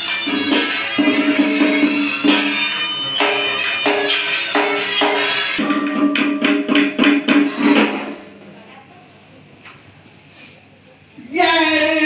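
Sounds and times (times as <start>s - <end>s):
ceremonial ritual music: 0.0s - 8.4s
percussion strikes: 0.0s - 8.6s.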